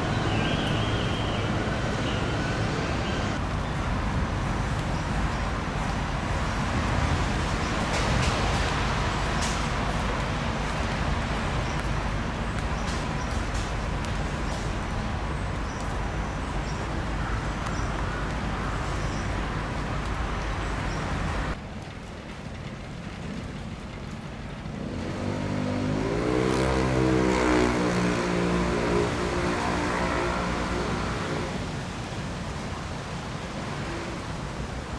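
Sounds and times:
traffic hum: 0.0s - 34.9s
vehicle engine accelerating: 24.8s - 31.6s.

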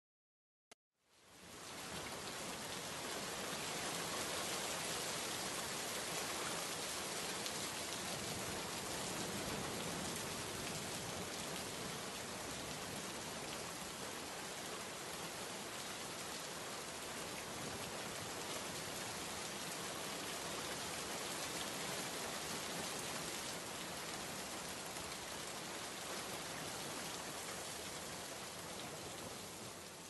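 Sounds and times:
heavy rain pouring: 1.5s - 30.0s.

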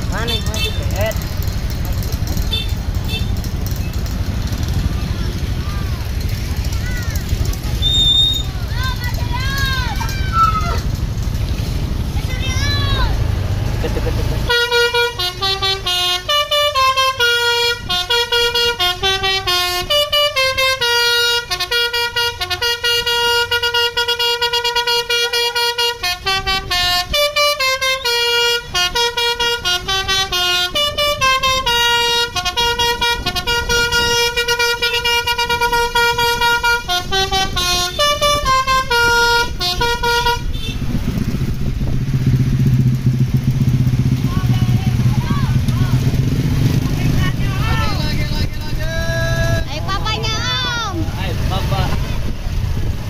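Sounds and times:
engine noise: 0.0s - 53.0s
bus horn playing melody: 0.1s - 0.9s, 2.5s - 3.4s, 14.0s - 41.0s.

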